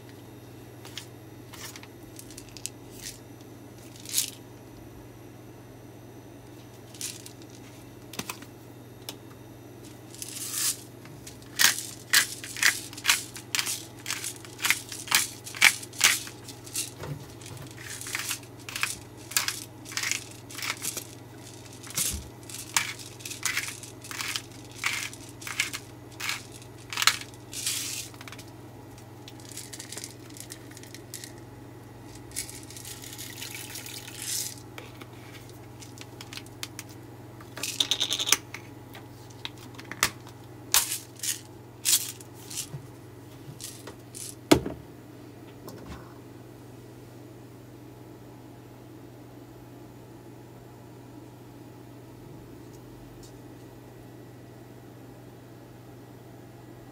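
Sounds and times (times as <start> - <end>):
pepper grinder crunching: 3.8 - 4.4, 9.9 - 31.4, 32.1 - 38.4, 39.4 - 42.7, 43.6 - 44.4.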